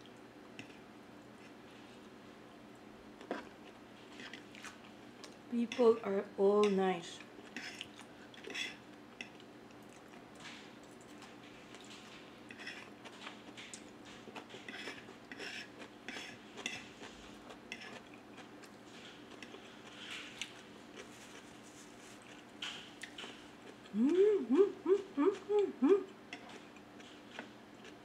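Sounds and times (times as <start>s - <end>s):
soft chewing: 0.0s - 28.0s
fork scraping and clinking on plate: 12.5s - 12.9s.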